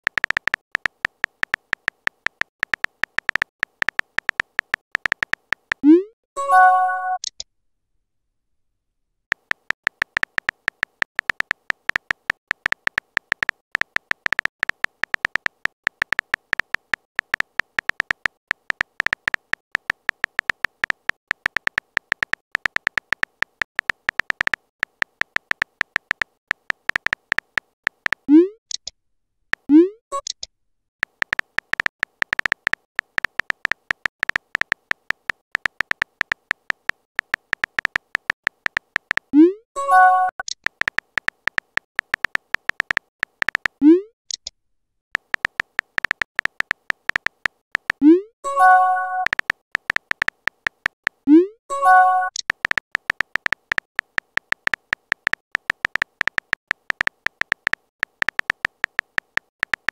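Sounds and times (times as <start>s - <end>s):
phone keyboard tap clicks: 0.1s - 5.8s, 9.3s - 28.3s, 31.0s - 39.3s, 40.5s - 44.4s, 45.2s - 48.0s, 49.2s - 51.2s, 52.3s - 59.9s
rising pop tones: 5.0s - 7.2s, 47.1s - 50.4s.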